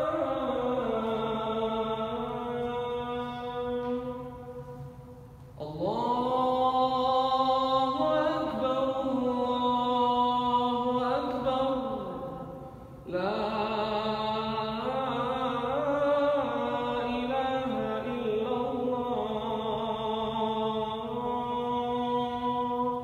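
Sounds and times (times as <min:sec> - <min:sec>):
man chanting call to prayer: 0:00.0 - 0:04.8.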